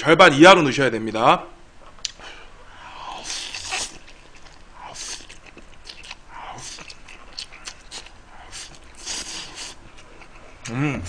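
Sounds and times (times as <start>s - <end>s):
chewing: 3.1s - 10.3s
man slurping noodles: 7.9s - 9.8s.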